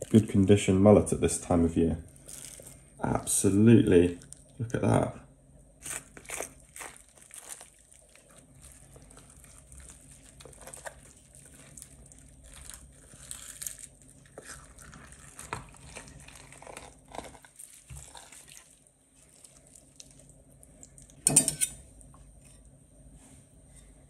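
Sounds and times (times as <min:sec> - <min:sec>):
wet handling of raw fish: 0:02.1 - 0:03.0, 0:05.8 - 0:21.2.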